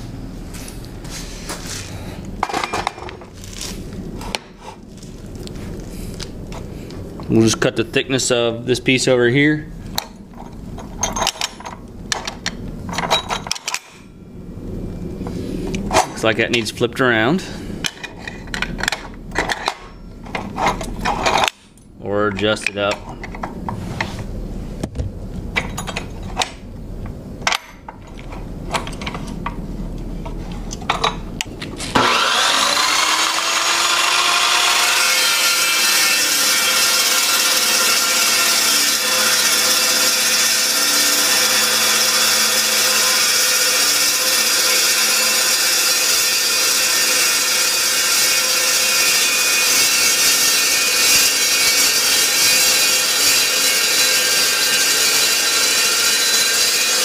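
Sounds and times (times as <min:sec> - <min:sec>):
cold saw cutting steel pipe: 0:31.9 - 0:57.0.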